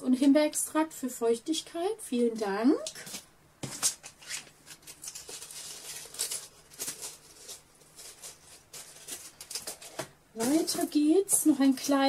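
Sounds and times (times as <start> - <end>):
packages rustling and crinkling: 3.0 - 12.0.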